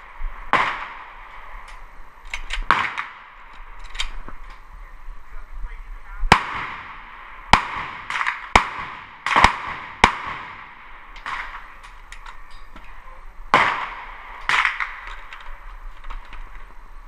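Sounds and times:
rifle shots: 0:00.0 - 0:04.3, 0:06.3 - 0:12.0, 0:13.5 - 0:16.4.

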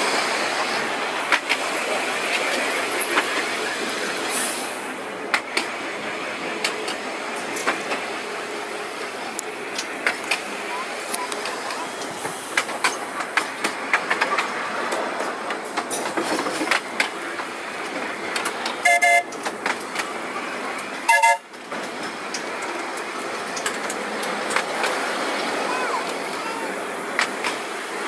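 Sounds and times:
wheels clicking on track: 0:00.0 - 0:04.4, 0:06.4 - 0:28.0
tram running on rails: 0:00.0 - 0:28.0
tram horn toots: 0:18.8 - 0:19.3, 0:21.0 - 0:21.6.

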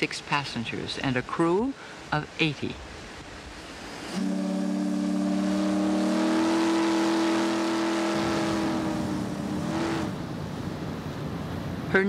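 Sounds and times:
steam whistle blast: 0:04.1 - 0:09.0.

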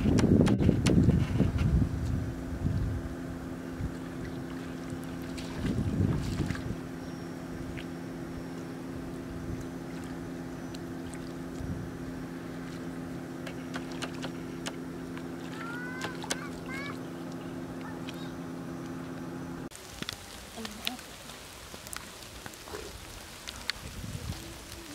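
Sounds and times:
distant engine drone: 0:00.0 - 0:24.9
bird chirps: 0:06.9 - 0:07.7.

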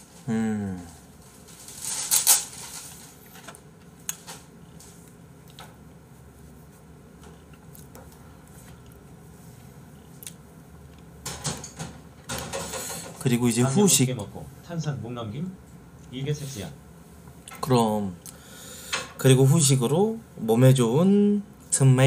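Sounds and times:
person chewing: 0:07.2 - 0:09.1, 0:09.9 - 0:11.1.

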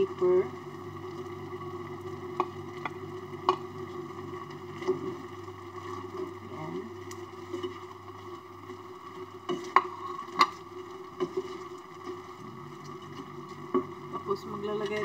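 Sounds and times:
steady hum: 0:00.0 - 0:15.0
spatula stirring food in a pan: 0:07.0 - 0:15.0.

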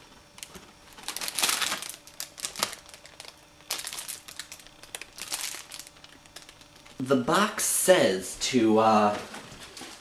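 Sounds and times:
plastic wrapper crinkling: 0:00.3 - 0:07.0.

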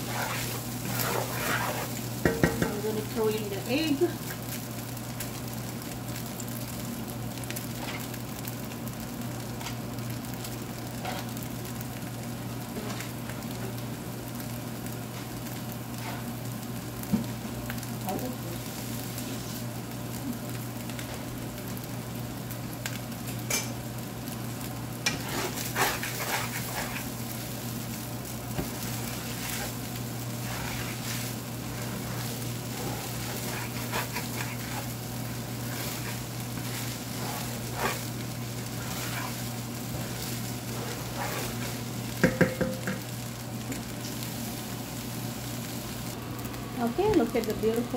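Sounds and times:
wooden spoon stirring: 0:00.0 - 0:03.2, 0:25.0 - 0:43.0
rice sizzling in a frying pan: 0:00.0 - 0:47.9
spoon knocking against pan: 0:02.2 - 0:02.8, 0:42.2 - 0:43.0.

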